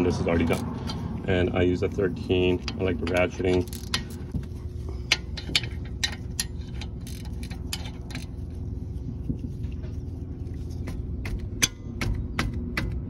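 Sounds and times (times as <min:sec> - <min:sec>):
steady low hum: 0:00.0 - 0:13.0
ratcheting wrench clicking: 0:02.6 - 0:04.5, 0:05.1 - 0:08.6.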